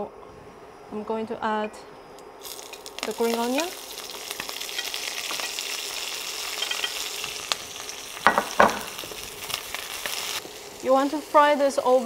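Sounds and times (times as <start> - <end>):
vegetables sizzling in hot oil: 2.4 - 12.0
utensil knocking on pan: 8.2 - 8.9.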